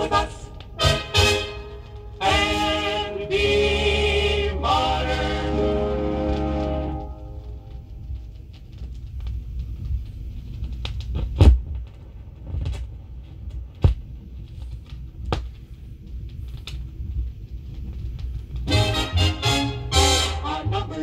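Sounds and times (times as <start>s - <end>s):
record clicks and pops: 6.2s - 18.8s.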